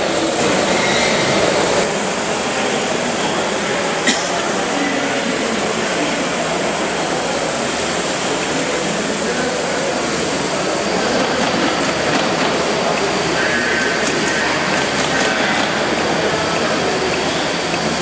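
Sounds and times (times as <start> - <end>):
rushing hiss of steam: 0.0 - 11.2.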